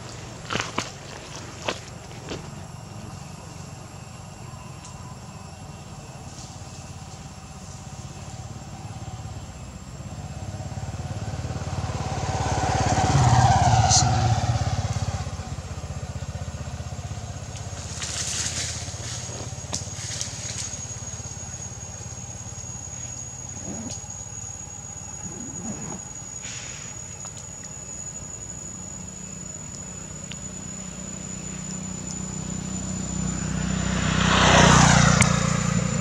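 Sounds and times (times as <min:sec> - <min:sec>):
motor vehicle passing by: 0:06.7 - 0:26.7, 0:29.0 - 0:36.0.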